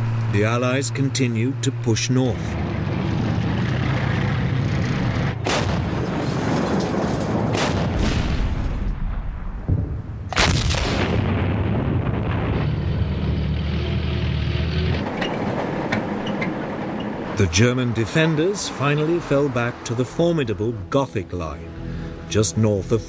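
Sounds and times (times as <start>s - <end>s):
military vehicles rumbling: 0.0s - 23.0s
artillery shell booms: 5.4s - 12.8s.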